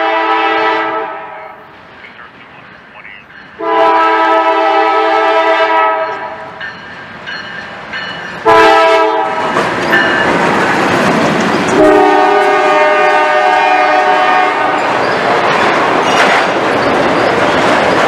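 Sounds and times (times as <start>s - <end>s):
locomotive air horn blasts: 0.0s - 1.6s, 3.6s - 6.4s, 8.4s - 9.4s, 11.8s - 14.8s
locomotive engines and wheels rushing: 9.2s - 18.0s.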